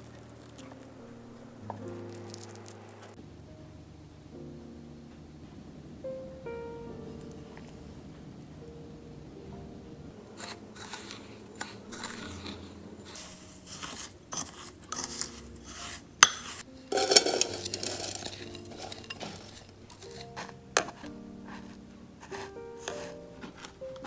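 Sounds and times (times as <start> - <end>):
spatula scraping glass bowl: 10.4 - 23.2
crumbs rustling into metal pan: 10.4 - 23.8.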